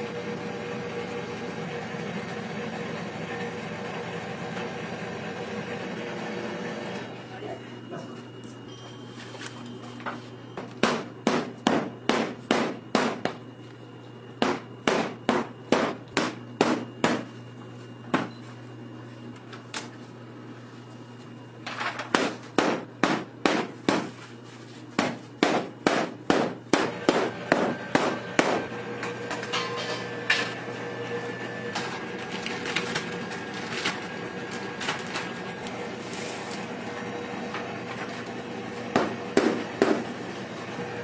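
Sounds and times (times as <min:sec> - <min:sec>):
sharp hard knocks: 0:25.0 - 0:28.6.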